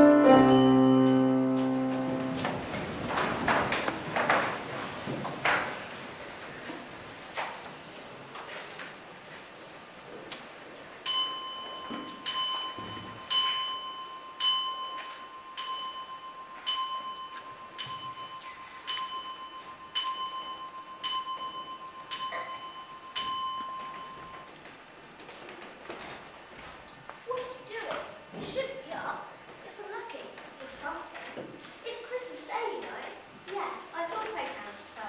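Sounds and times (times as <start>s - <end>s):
clock chime striking: 0.0s - 2.8s, 11.1s - 24.5s.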